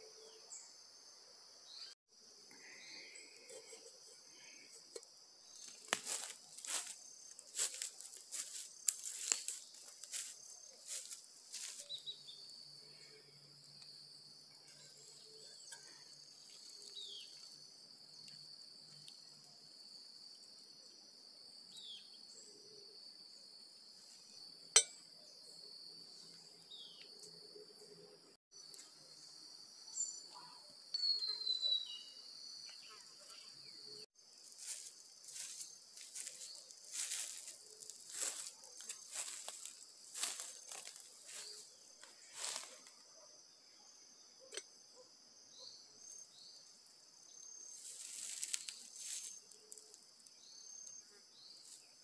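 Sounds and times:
high insect drone: 0.0s - 31.0s, 31.9s - 52.0s
footsteps crunching dry leaves: 5.6s - 12.2s, 34.4s - 42.9s, 47.8s - 49.8s.

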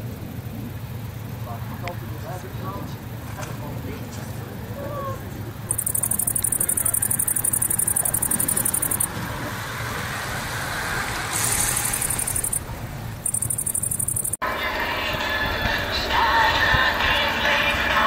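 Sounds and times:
insects buzzing: 0.0s - 14.4s
low steady rumble: 0.0s - 14.4s.

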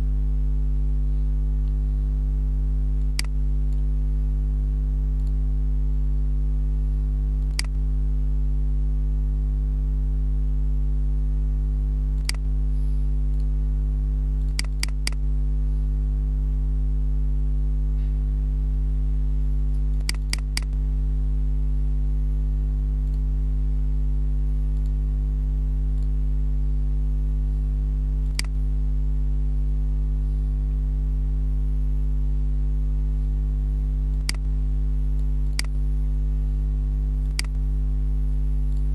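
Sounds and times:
low electrical hum: 0.0s - 38.9s
computer mouse clicks: 3.0s - 3.9s, 5.2s - 5.4s, 7.4s - 7.8s, 12.2s - 12.5s, 14.4s - 15.2s, 19.7s - 20.8s, 24.8s - 25.0s, 28.2s - 28.6s, 34.1s - 34.5s, 35.2s - 35.8s, 37.2s - 37.6s.

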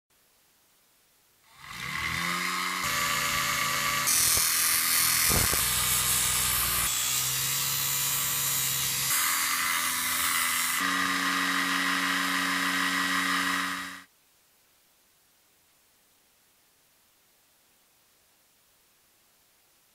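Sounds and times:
small motor whining: 1.5s - 14.1s
metal grinding on disc: 1.6s - 14.0s.

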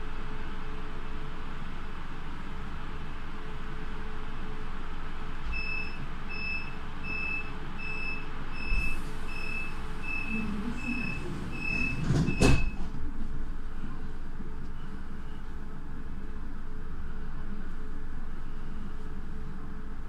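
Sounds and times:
short high warning beeps: 5.6s - 12.8s
train rumble: 7.7s - 20.0s
train doors banging shut: 10.8s - 13.0s.

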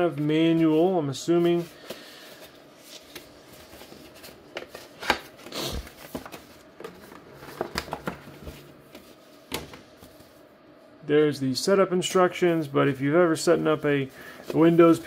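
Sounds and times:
cardboard and paper rustling: 1.5s - 10.4s.

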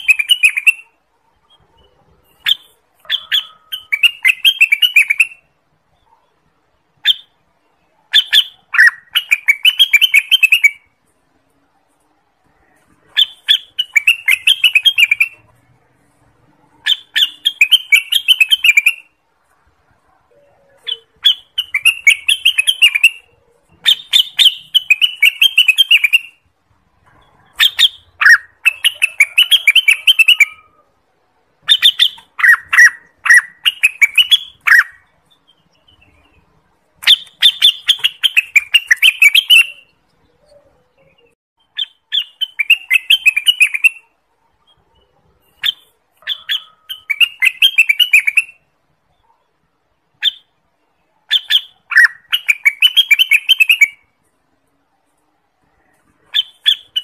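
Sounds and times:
bird singing chattering notes: 0.0s - 10.9s, 13.0s - 15.6s, 16.7s - 19.2s, 20.4s - 26.4s, 31.6s - 48.6s.

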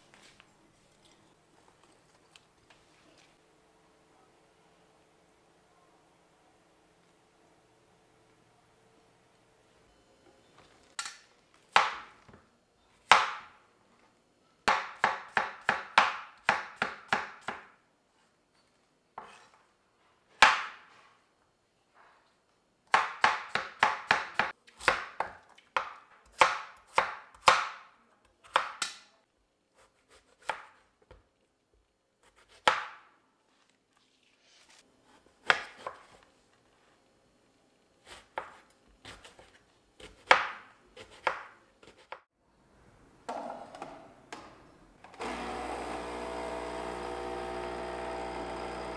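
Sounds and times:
knife chopping on wooden board: 38.1s - 42.3s.

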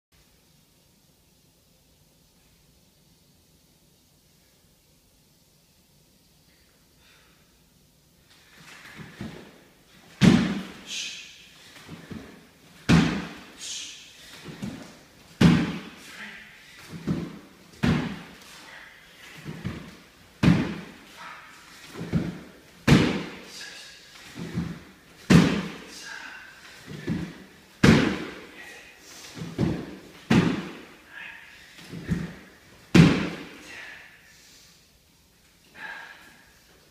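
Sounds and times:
loud slam ringing in room: 10.1s - 16.1s, 16.9s - 18.5s, 19.4s - 23.5s, 24.3s - 25.9s, 26.8s - 28.5s, 29.4s - 31.0s, 31.9s - 33.6s
body thudding on wooden floor: 11.9s - 13.3s, 14.4s - 15.9s, 16.9s - 18.3s, 19.5s - 20.9s, 21.9s - 23.4s, 26.8s - 28.4s, 29.4s - 30.8s, 31.9s - 33.4s.

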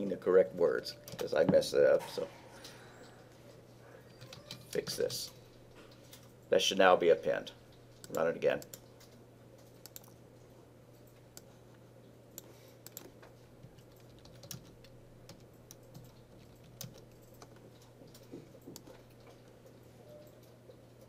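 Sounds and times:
faint steady hum: 0.0s - 21.0s
keyboard typing: 4.1s - 5.1s, 8.0s - 10.2s, 12.4s - 19.5s.

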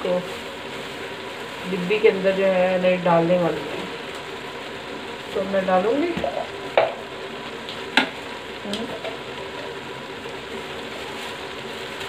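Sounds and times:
vegetables sizzling in a pot: 0.0s - 12.0s.

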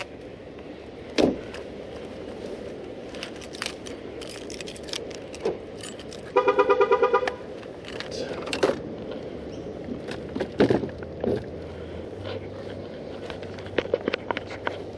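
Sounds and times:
keys jingling: 3.1s - 6.4s.

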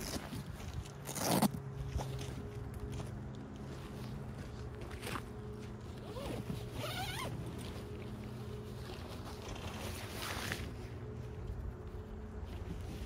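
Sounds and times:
zipper being pulled open: 0.0s - 1.6s, 6.0s - 7.6s.

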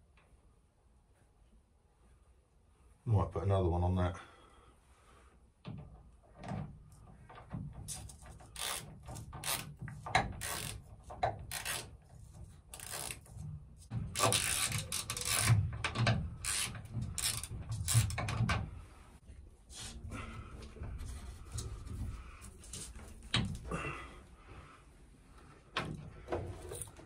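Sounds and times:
spanner clicking and scraping: 7.8s - 18.6s.

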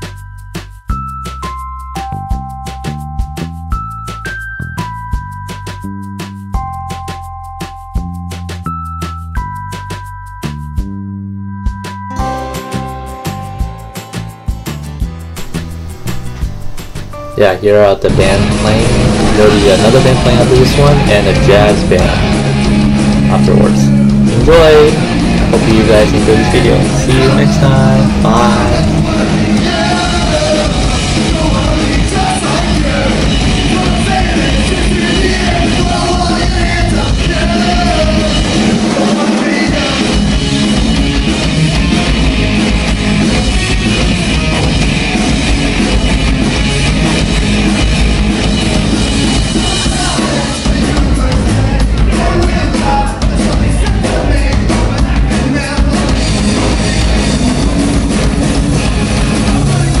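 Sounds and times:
drum kit: 11.7s - 60.0s
electric guitars: 12.1s - 60.0s
man singing: 17.4s - 40.3s, 49.4s - 57.5s, 59.4s - 60.0s.

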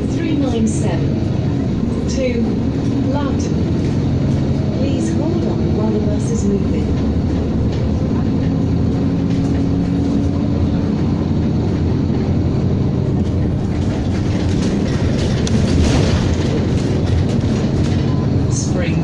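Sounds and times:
bus engine drone: 0.0s - 19.0s
road rumble: 0.0s - 19.0s
rattles and knocks: 13.1s - 18.5s.

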